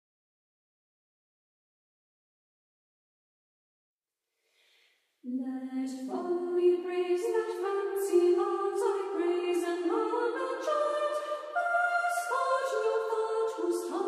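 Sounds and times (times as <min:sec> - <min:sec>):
choir singing: 0:05.4 - 0:14.0.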